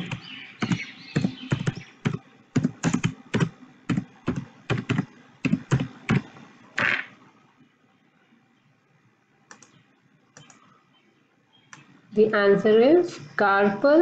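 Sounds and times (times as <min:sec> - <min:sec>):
computer keyboard typing: 0:00.0 - 0:06.3, 0:09.5 - 0:09.8, 0:10.4 - 0:10.7.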